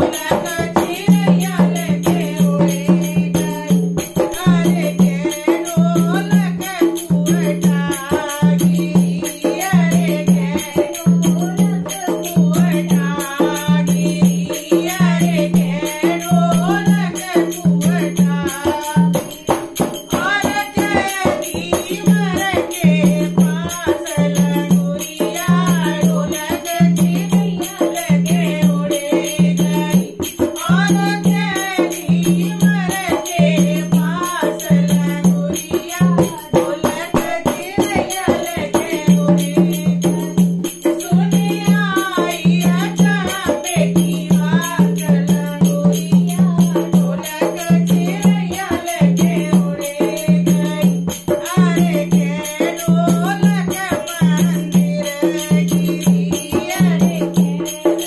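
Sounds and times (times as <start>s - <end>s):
hand drum rhythm: 0.0s - 58.0s
woman singing: 0.0s - 58.0s.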